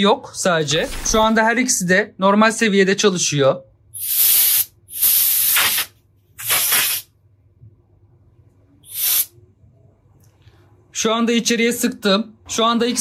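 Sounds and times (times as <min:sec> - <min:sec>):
spray hissing: 0:04.0 - 0:07.1, 0:08.9 - 0:09.3.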